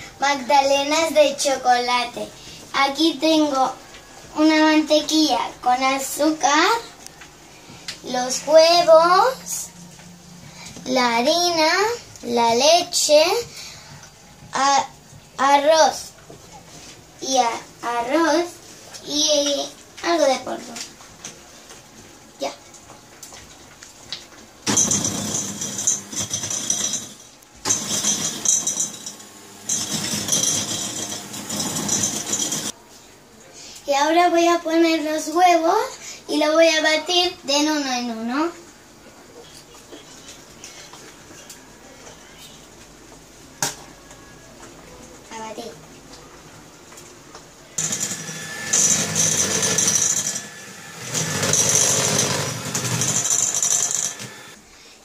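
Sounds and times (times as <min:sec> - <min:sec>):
electric hand mixer running: 0:27.7 - 0:32.7, 0:47.8 - 0:54.6.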